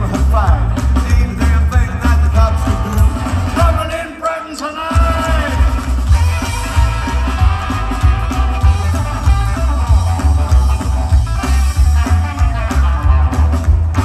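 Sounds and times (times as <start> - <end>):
upright bass: 0.0 - 4.1, 4.9 - 14.0
drums: 0.0 - 14.0
electric guitar: 5.0 - 14.0.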